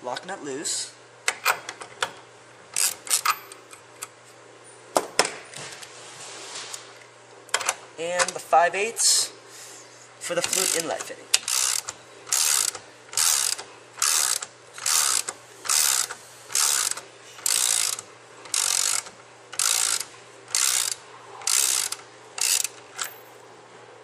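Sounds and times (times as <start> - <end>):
ratchet wrench clicking: 2.8 - 3.5, 10.4 - 23.3.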